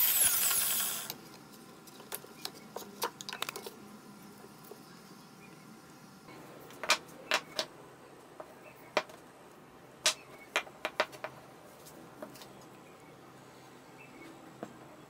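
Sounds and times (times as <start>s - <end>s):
wooden pieces clacking: 6.7s - 7.7s, 10.0s - 11.4s.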